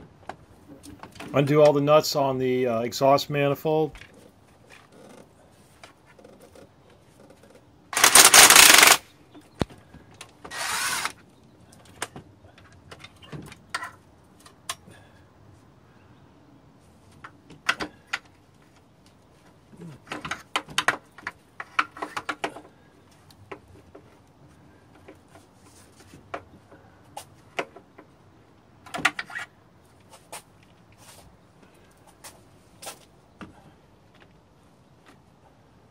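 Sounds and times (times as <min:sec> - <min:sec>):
cordless power tool running: 0:08.0 - 0:09.0, 0:10.5 - 0:11.2.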